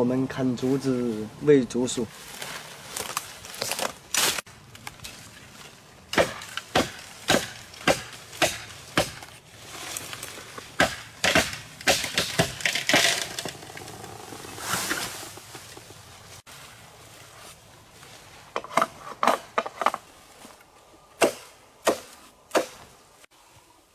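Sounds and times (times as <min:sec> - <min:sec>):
leaves swishing as bamboo falls: 0:02.2 - 0:13.3, 0:14.5 - 0:15.5
bamboo chopping knocks: 0:06.1 - 0:09.3, 0:10.8 - 0:13.2, 0:21.2 - 0:22.8.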